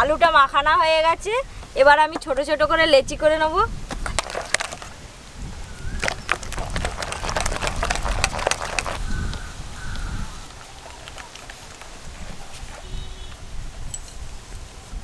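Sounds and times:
hand beating batter in bowl: 0:06.0 - 0:09.4.

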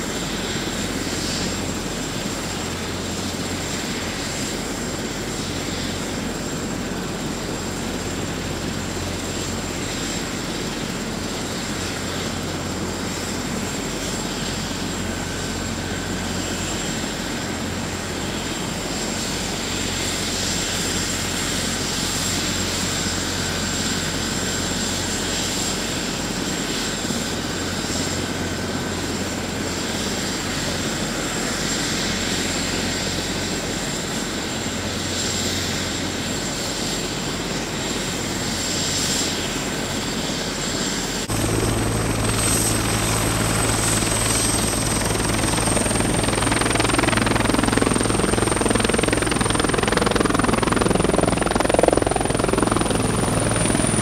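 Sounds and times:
helicopter idling: 0:00.0 - 0:54.0.

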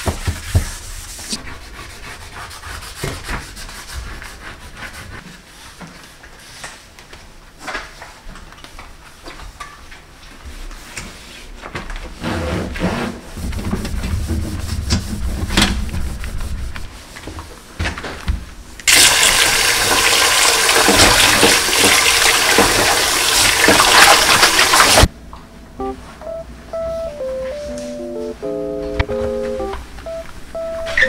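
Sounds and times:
cloth rubbing on countertop: 0:00.0 - 0:06.7, 0:10.4 - 0:11.6, 0:12.2 - 0:17.4
water pouring into metal bowl: 0:18.9 - 0:25.0.

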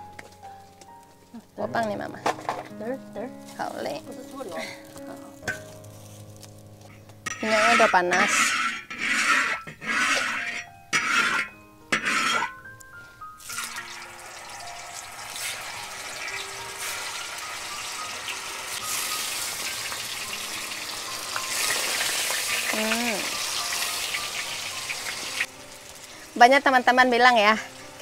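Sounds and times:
spatula scraping in wok: 0:07.2 - 0:12.6, 0:13.4 - 0:26.4
tofu sizzling in hot oil: 0:13.4 - 0:28.0.

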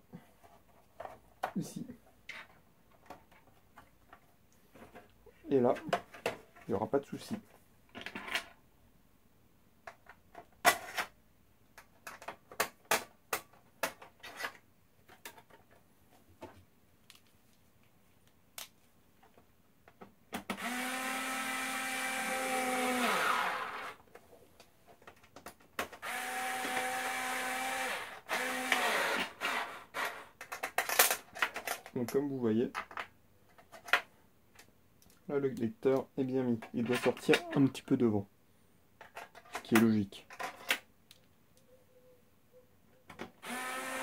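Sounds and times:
electric screwdriver running: 0:20.6 - 0:24.0, 0:26.0 - 0:30.1, 0:43.4 - 0:44.0.

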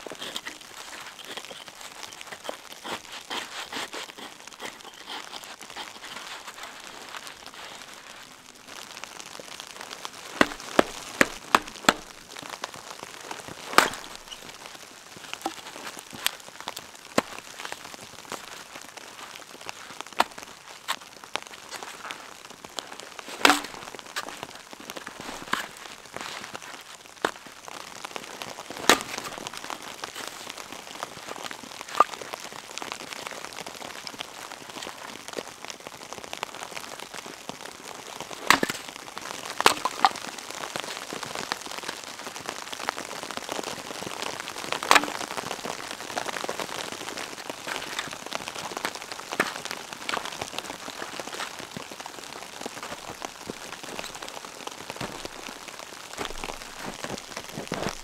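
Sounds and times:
wet snow pattering on tent fabric: 0:00.0 - 0:58.0
sharp knocks: 0:10.4 - 0:12.1.

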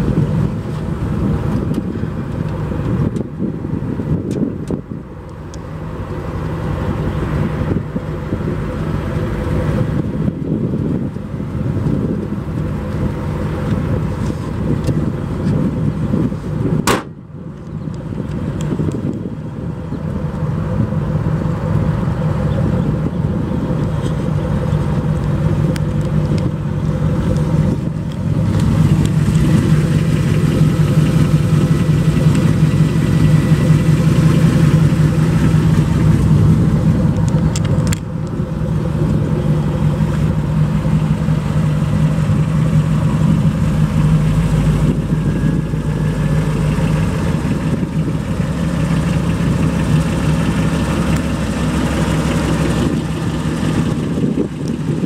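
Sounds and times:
car engine idling: 0:00.0 - 0:55.0.

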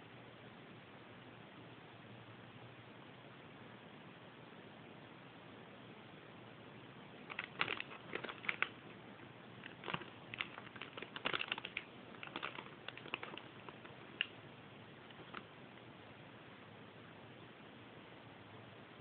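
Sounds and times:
plastic packaging crinkling: 0:07.3 - 0:09.0, 0:09.6 - 0:14.4, 0:15.1 - 0:15.5.

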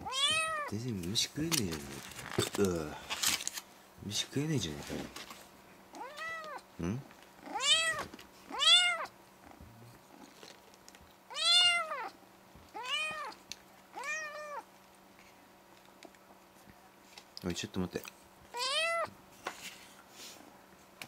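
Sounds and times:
cat meowing: 0:00.0 - 0:00.7, 0:06.0 - 0:06.6, 0:07.5 - 0:09.1, 0:11.3 - 0:14.7, 0:18.5 - 0:19.2.

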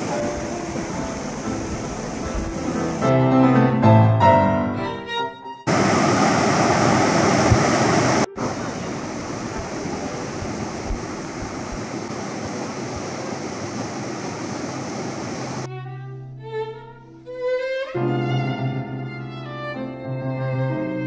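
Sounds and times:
river water rushing over rocks: 0:00.0 - 0:03.1, 0:05.7 - 0:15.7.

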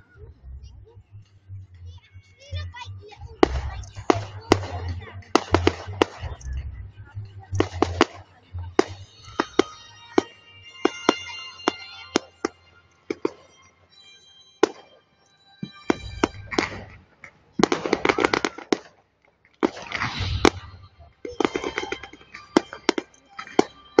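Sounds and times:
firework crackling: 0:03.4 - 0:06.5, 0:07.6 - 0:13.6, 0:15.9 - 0:19.0, 0:19.6 - 0:24.0
firework shells bursting: 0:19.6 - 0:24.0.

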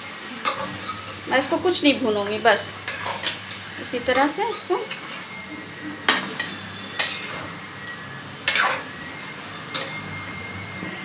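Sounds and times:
metal spoon clanking on pan: 0:06.1 - 0:07.4, 0:08.5 - 0:08.8.

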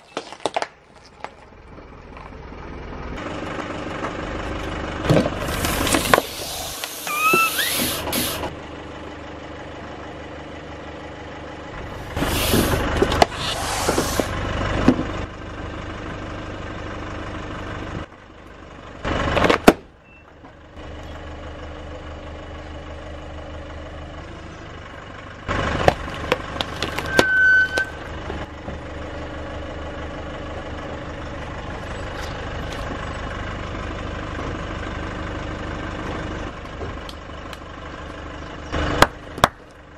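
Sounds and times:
tyre crushing plastic objects: 0:00.0 - 0:01.5
car engine idling: 0:00.2 - 0:39.9.

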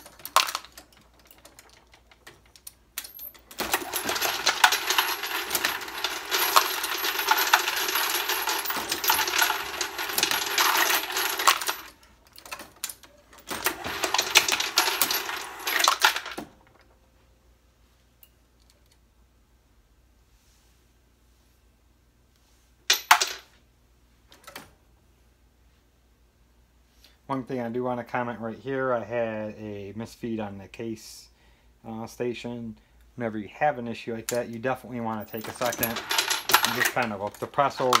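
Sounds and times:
cartridge cases clattering: 0:35.2 - 0:38.0.

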